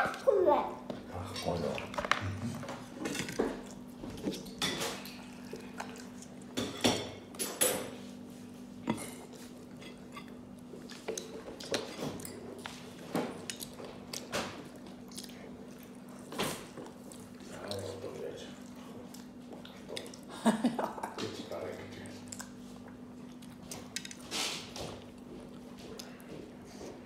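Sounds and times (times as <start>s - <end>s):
chewing mouth noises: 5.1s - 6.6s, 13.5s - 17.9s.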